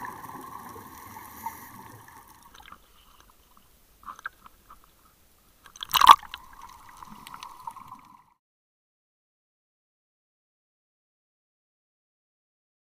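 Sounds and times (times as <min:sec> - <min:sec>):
seawater splashing and gurgling: 0:00.0 - 0:03.0, 0:05.8 - 0:08.2.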